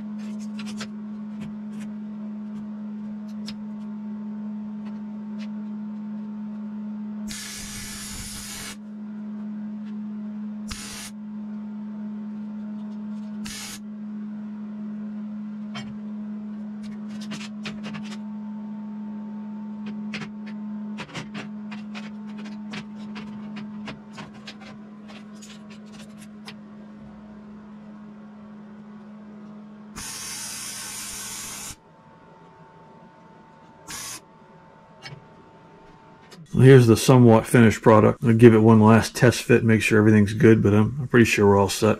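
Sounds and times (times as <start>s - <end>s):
steady hum: 0.0s - 41.9s
welder crackling: 7.3s - 8.8s, 10.7s - 11.1s.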